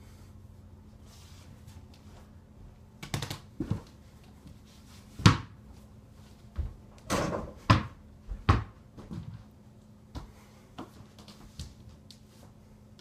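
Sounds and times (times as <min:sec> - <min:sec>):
ball hitting backboard and door: 0:05.2 - 0:05.6, 0:07.0 - 0:09.3.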